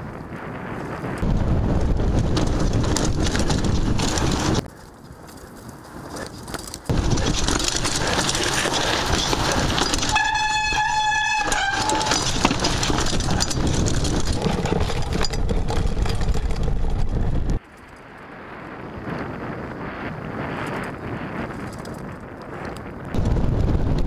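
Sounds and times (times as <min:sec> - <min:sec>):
wind buffeting on microphone: 0:00.0 - 0:04.7, 0:05.5 - 0:24.0
bike rattling over trail: 0:00.1 - 0:23.6
brake squealing: 0:06.9 - 0:17.6.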